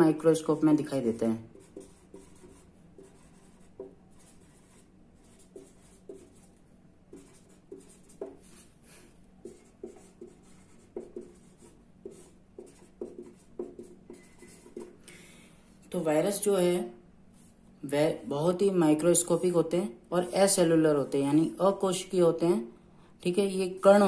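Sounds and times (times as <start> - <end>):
marker pen writing: 1.5 - 15.0.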